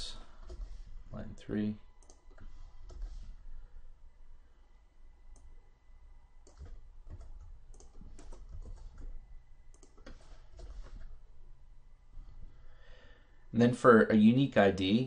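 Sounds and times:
computer keyboard typing: 0.2 - 3.4, 6.4 - 11.2.

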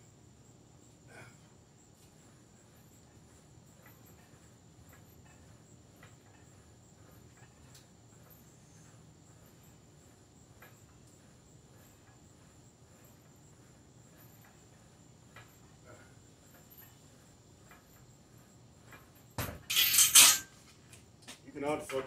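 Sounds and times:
weight stack clanking: 19.7 - 20.5.

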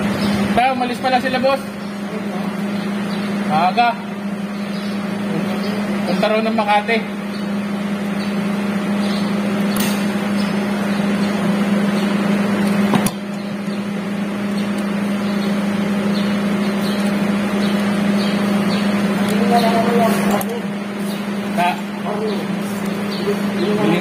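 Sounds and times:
low machine hum: 0.0 - 24.0.

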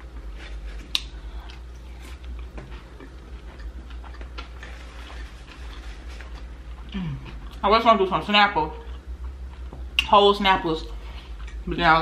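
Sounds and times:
crunchy chewing: 0.2 - 7.6.

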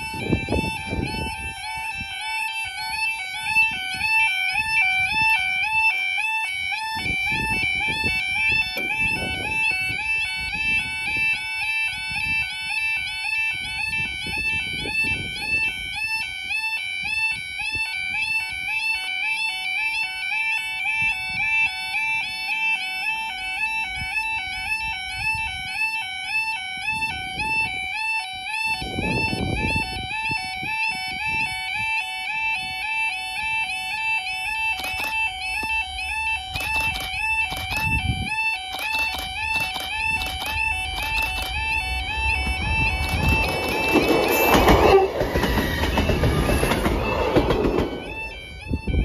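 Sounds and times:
two-tone electronic crossing alarm: 0.0 - 49.0
low rumbling: 39.9 - 49.0.

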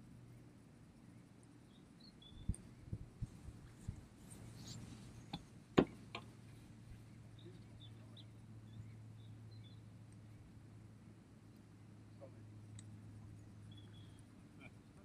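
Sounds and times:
low steady hum: 0.0 - 15.0
faint bird chirps: 1.0 - 3.0, 7.0 - 10.4, 13.2 - 15.0.

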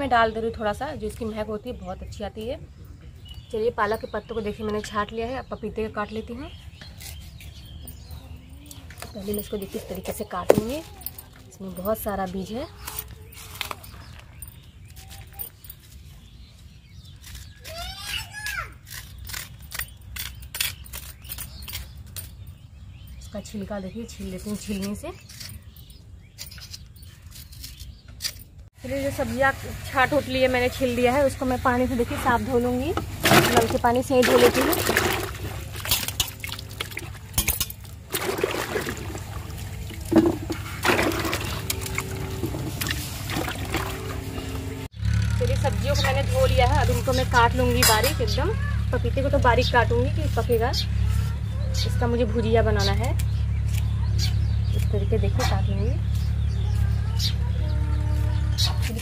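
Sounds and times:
knife scraping papaya: 24.6 - 28.4
water splashing and dripping: 33.0 - 44.7.

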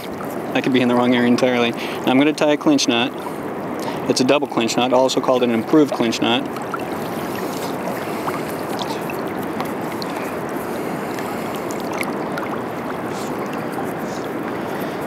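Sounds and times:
river rushing: 3.1 - 15.0.

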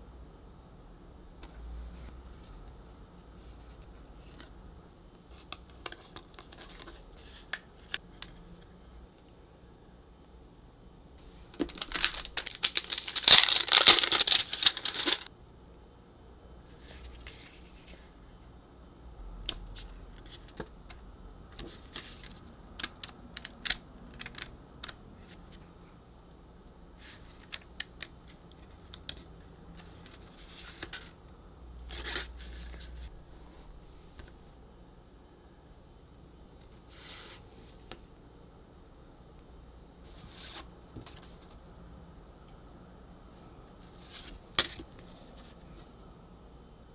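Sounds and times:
book pages turning: 11.6 - 15.3
paper crinkling and rustling: 11.6 - 15.3.

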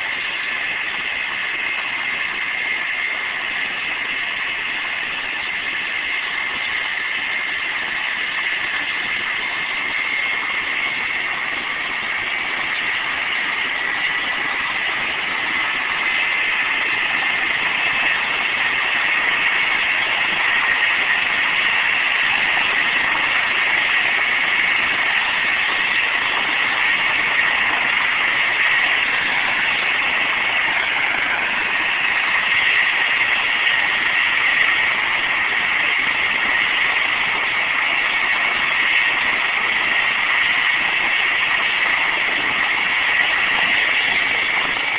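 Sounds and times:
helicopter rotor rushing hiss: 0.0 - 44.9
helicopter turbine whine: 0.0 - 44.9.

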